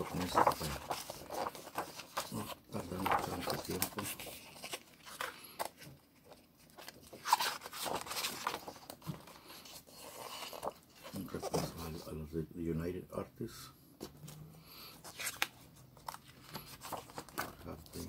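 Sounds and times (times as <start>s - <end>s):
paper rustling and crinkling: 0.0s - 12.1s, 15.0s - 18.0s.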